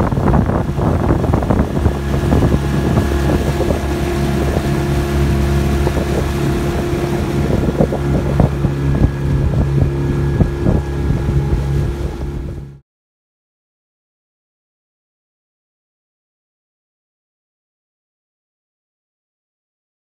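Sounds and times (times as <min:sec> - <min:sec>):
outboard motor running: 0:00.0 - 0:12.8
wind buffeting microphone: 0:00.0 - 0:12.8.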